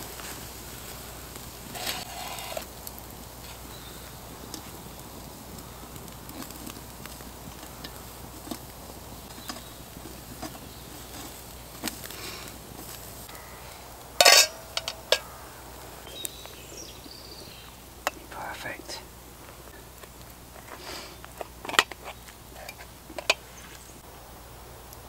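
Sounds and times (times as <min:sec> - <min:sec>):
campfire crackling and popping: 0:00.0 - 0:25.0
metallic clatter with ring: 0:14.2 - 0:15.3.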